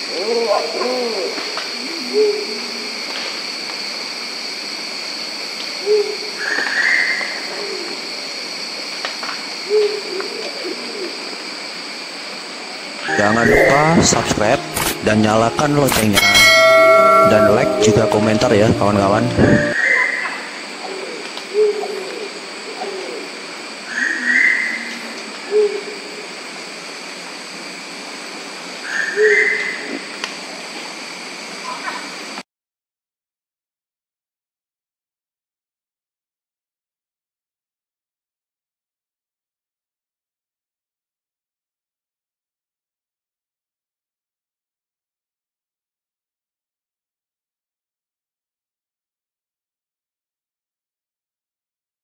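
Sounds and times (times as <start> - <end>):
pigeon hooting: 0.1 - 2.8
high background drone: 13.1 - 19.8
higher rougher call: 13.1 - 19.8.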